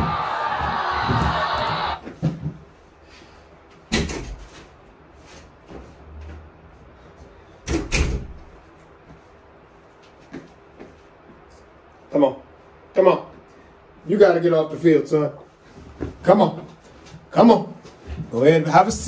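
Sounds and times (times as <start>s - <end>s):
crowd noise: 0.0s - 2.0s.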